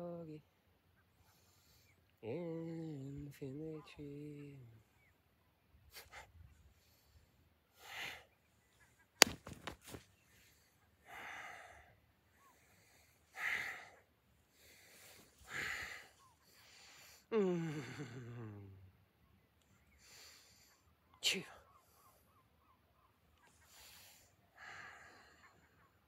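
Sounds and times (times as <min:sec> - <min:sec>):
sharp clicks: 0:09.2 - 0:10.0
sighing vocal sound: 0:17.3 - 0:18.8.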